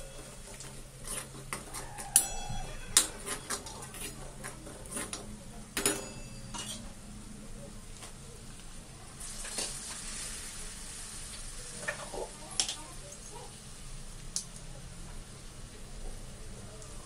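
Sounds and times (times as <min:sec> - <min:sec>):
dough sizzling in hot oil: 0:06.6 - 0:17.0.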